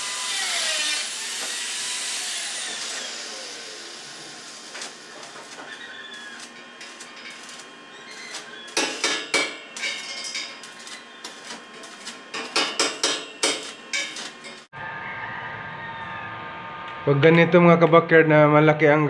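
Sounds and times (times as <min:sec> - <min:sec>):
welding arc crackling and popping: 0:01.2 - 0:14.7.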